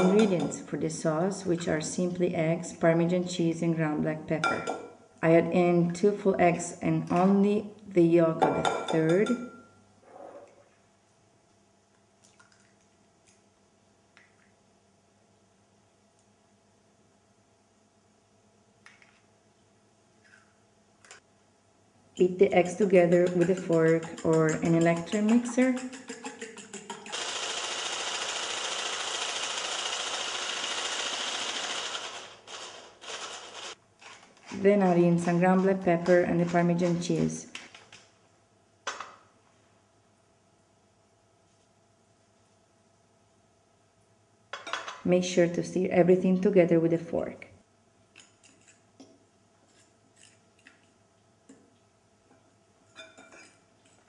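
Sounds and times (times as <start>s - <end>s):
fork scraping ceramic bowl: 22.6s - 27.2s
electric hand mixer whirring: 23.3s - 33.8s.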